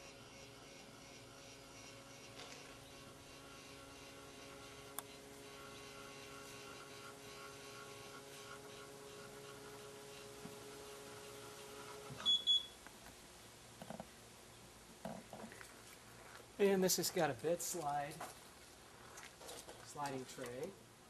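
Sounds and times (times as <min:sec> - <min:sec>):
electric motor humming: 0:00.0 - 0:12.2.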